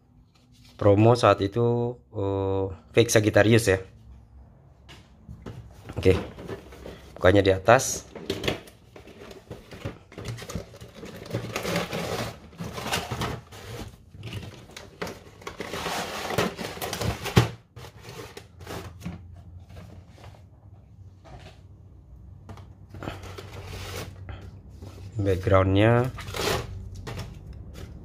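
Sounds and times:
plastic and cardboard rustling: 0:05.1 - 0:21.8, 0:22.4 - 0:28.0.

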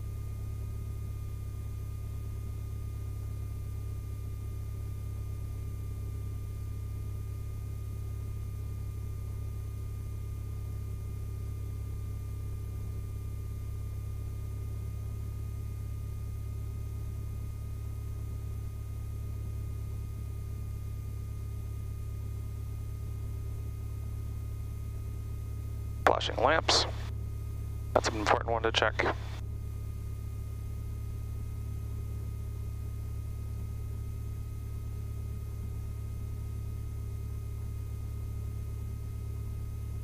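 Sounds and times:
thin steady whine: 0:22.9 - 0:35.9.

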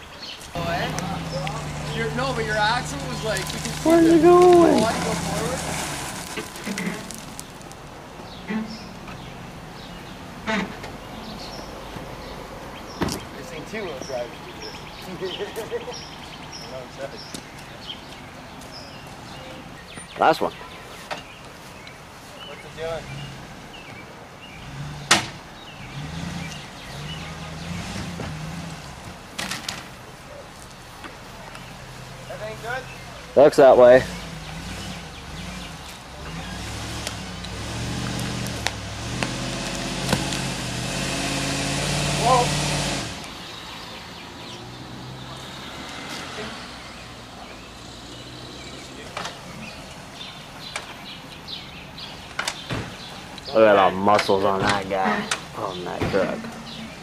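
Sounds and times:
sharp crack: 0:00.4 - 0:07.9, 0:36.8 - 0:43.4
truck engine revving: 0:00.5 - 0:11.5, 0:24.5 - 0:29.6, 0:31.8 - 0:43.5.

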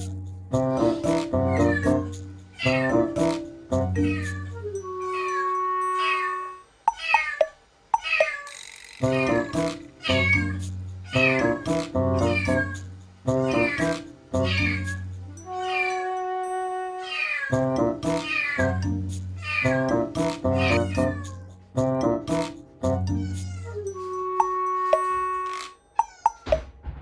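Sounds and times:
kitten meowing: 0:01.5 - 0:03.0, 0:04.0 - 0:11.6, 0:12.2 - 0:12.8, 0:13.5 - 0:15.0, 0:18.2 - 0:18.8, 0:20.6 - 0:21.5.

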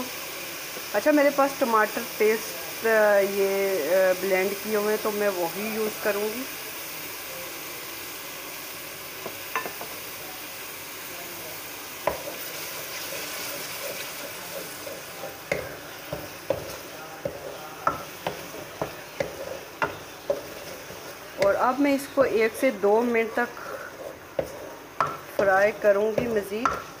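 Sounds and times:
masala sizzling in hot oil: 0:00.0 - 0:27.0
wooden spatula scraping a wok: 0:12.0 - 0:27.0.

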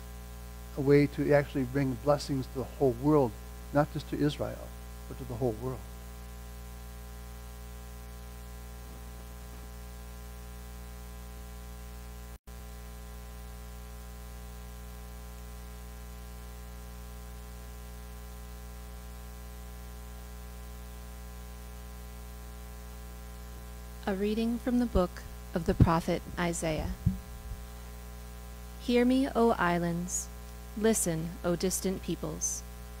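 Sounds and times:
constant hiss: 0:00.0 - 0:33.0
electrical mains hum: 0:00.0 - 0:33.0.

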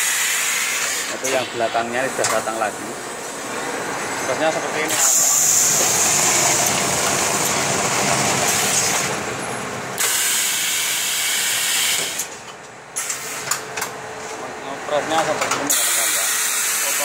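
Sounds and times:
wrapping machine hissing: 0:00.0 - 0:02.8, 0:04.7 - 0:09.2, 0:10.0 - 0:12.3, 0:15.6 - 0:17.0.

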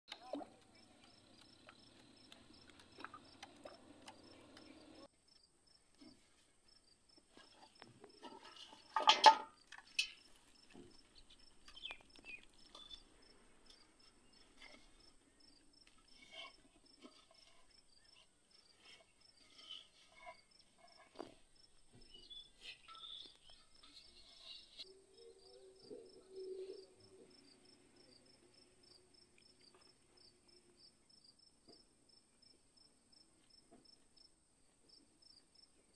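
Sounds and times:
crickets chirring: 0:00.6 - 0:05.8, 0:06.7 - 0:34.3.

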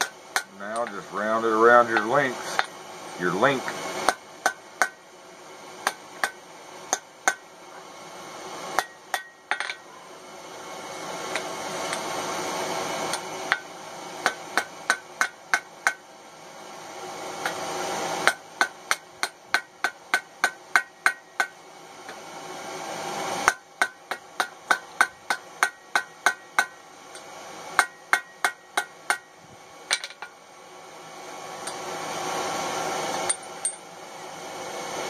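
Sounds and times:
hammer striking metal on anvil: 0:00.0 - 0:01.1, 0:01.9 - 0:02.8, 0:04.0 - 0:05.0, 0:05.8 - 0:07.4, 0:08.8 - 0:09.8, 0:14.2 - 0:16.0, 0:18.2 - 0:21.6, 0:23.4 - 0:29.3.

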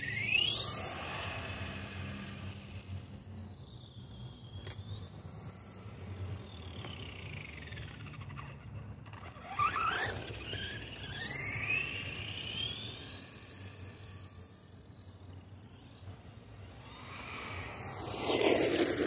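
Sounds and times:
electric motor whining: 0:09.2 - 0:19.0.

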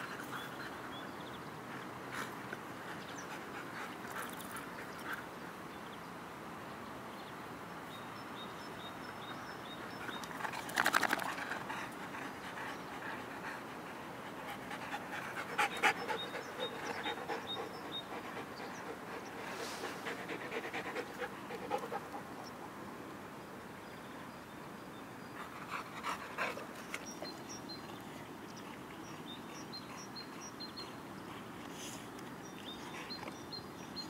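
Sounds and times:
dogs panting: 0:00.0 - 0:05.4, 0:09.9 - 0:22.8, 0:25.4 - 0:33.8.

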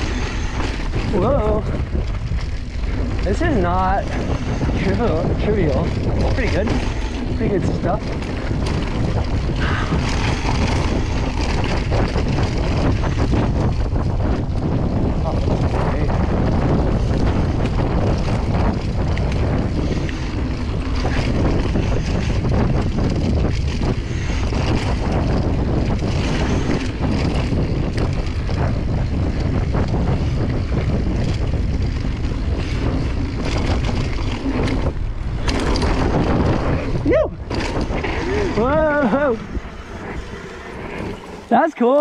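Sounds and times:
mountain bike rumble and rattle: 0:00.0 - 0:42.0
wind buffeting microphone: 0:00.0 - 0:42.0.

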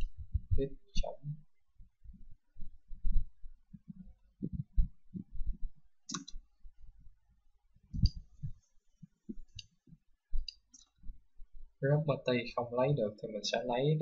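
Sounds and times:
soft low thumps: 0:00.0 - 0:07.2, 0:07.8 - 0:11.8
mouse and keyboard clicks: 0:06.1 - 0:06.4.

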